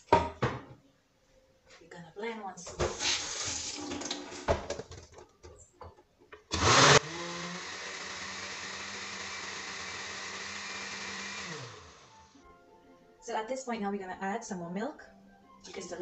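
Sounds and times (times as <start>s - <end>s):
blender motor running: 6.5s - 12.4s.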